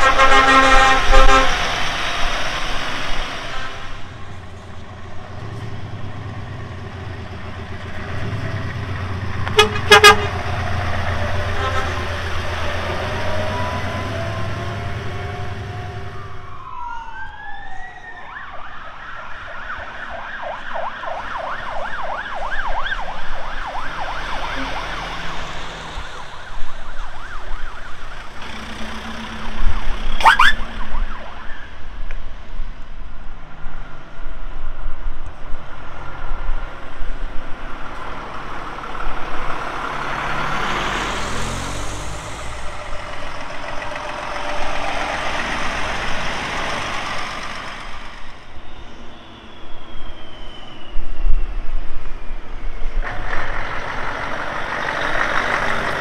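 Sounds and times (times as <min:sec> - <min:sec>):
low rumble of lorry engines: 0:00.0 - 0:56.0
vehicle siren wailing and yelping: 0:12.6 - 0:28.4, 0:29.6 - 0:31.9.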